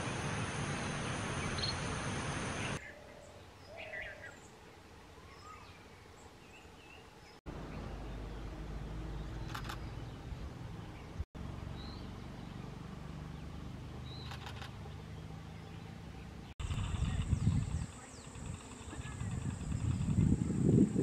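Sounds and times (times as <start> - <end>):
rapid rattling calls: 14.2 - 14.9, 16.6 - 20.5.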